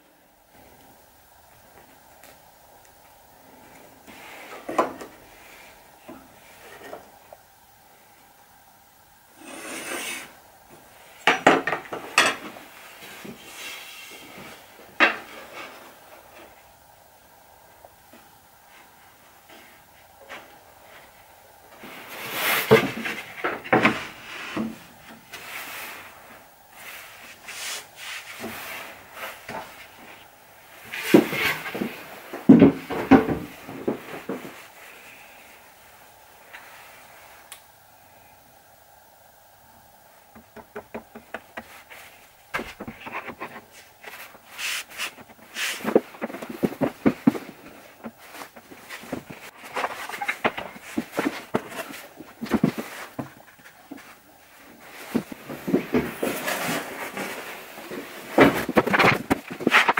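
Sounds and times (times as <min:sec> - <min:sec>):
plywood boards scraping: 0:09.4 - 0:10.4, 0:30.9 - 0:34.6, 0:40.4 - 0:54.2, 0:54.9 - 0:59.9
boards knocking together: 0:40.4 - 0:41.8, 0:58.4 - 0:59.9.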